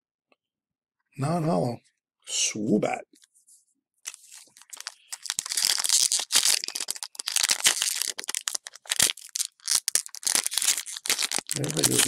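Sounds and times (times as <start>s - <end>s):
foil wrapper crinkling: 4.1s - 12.0s.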